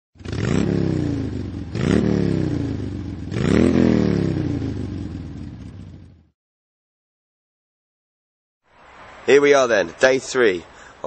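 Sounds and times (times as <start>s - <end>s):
motorcycle engine revving: 0.2s - 6.4s.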